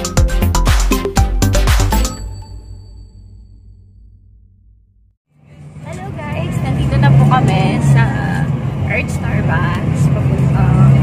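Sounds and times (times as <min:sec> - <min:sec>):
electronic dance music: 0:00.0 - 0:02.2.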